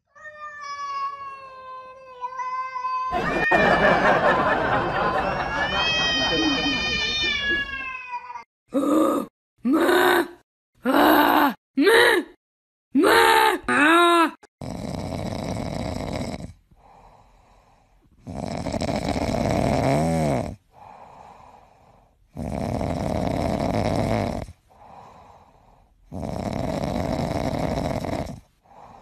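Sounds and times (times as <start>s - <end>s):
cat snoring: 14.6s - 29.0s
quiet breaths: 16.4s - 18.8s, 20.5s - 22.8s, 24.2s - 29.0s.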